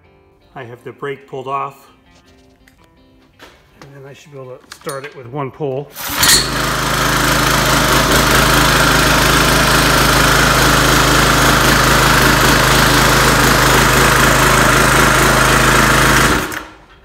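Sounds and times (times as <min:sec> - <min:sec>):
gas engine running at full throttle: 0:06.0 - 0:16.9.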